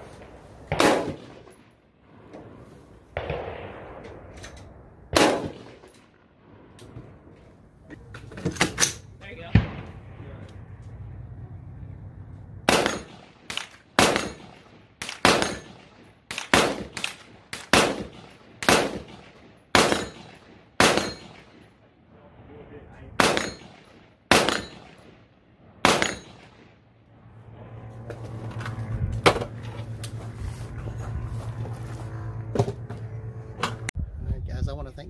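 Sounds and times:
low hum: 0.0s - 35.0s
rifle shots with echo: 0.1s - 1.8s, 3.1s - 4.3s, 5.1s - 6.4s, 9.4s - 10.4s, 12.6s - 21.8s, 23.1s - 26.8s.

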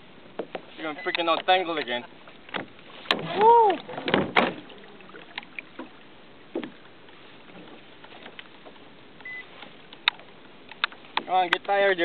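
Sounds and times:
water and wind hiss: 0.0s - 12.0s
faint ticks: 8.0s - 11.8s.

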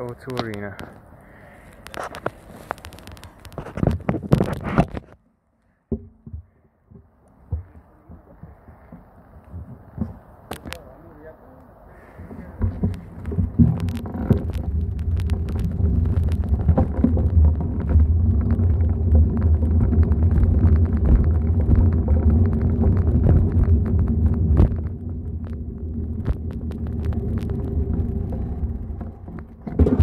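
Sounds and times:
bicycle tyres rumbling over paving: 0.0s - 5.2s, 11.9s - 30.0s
bike clicks and rattles: 0.0s - 5.2s, 12.2s - 30.0s.

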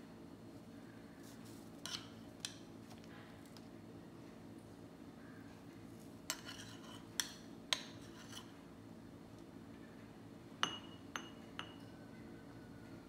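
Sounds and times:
spoon clinking against glass: 10.6s - 11.9s.

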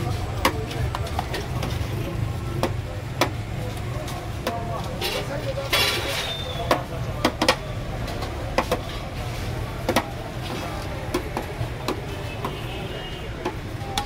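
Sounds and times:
low street hum: 0.0s - 14.0s.

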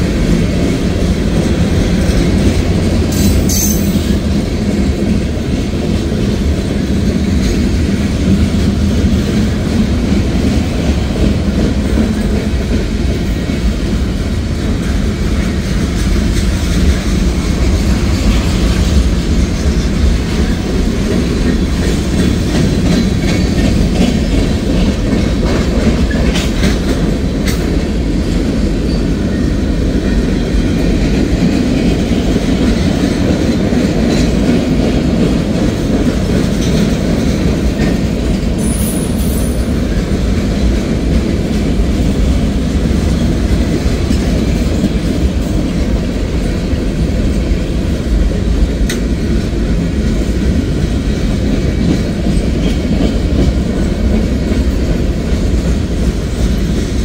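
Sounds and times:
train wheels rolling on rails: 0.0s - 57.0s.

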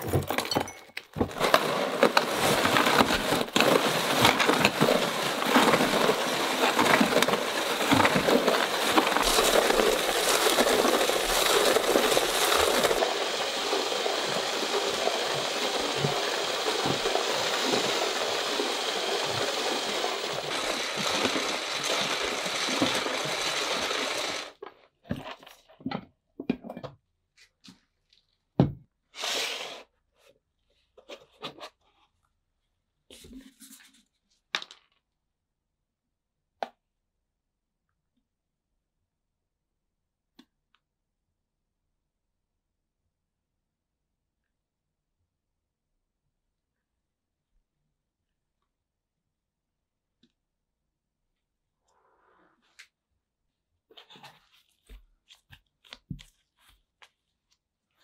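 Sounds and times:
ice cream maker grinding rattle: 1.2s - 24.7s.

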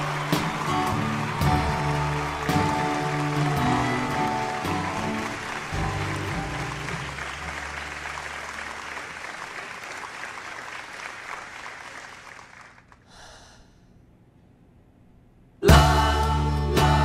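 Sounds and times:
audience applause: 0.0s - 13.0s
breath into a microphone: 13.0s - 14.0s.

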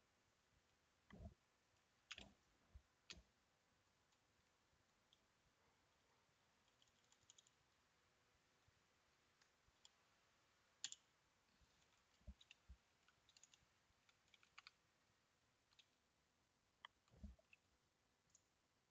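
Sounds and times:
keyboard keys clicking: 13.3s - 14.8s.

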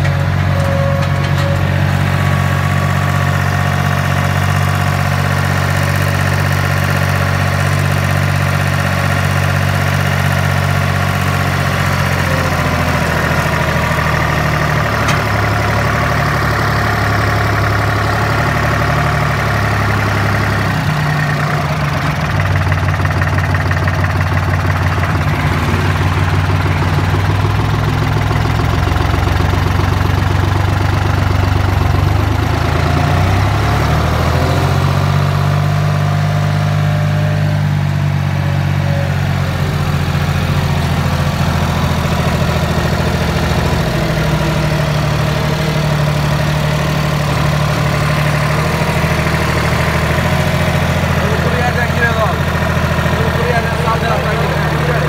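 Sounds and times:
tractor diesel engine running: 0.0s - 55.0s.

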